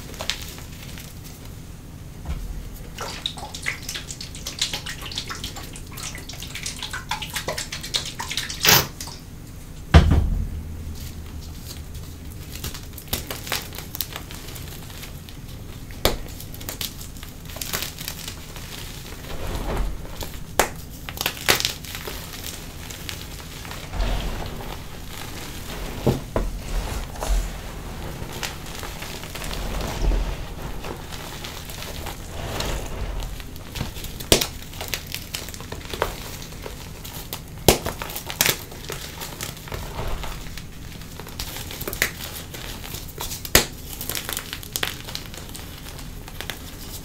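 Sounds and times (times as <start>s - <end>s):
heavy thud: 2.2s - 3.0s, 9.8s - 13.1s, 19.3s - 20.9s, 23.8s - 34.0s
chalk crunching and crackling: 11.7s - 47.0s.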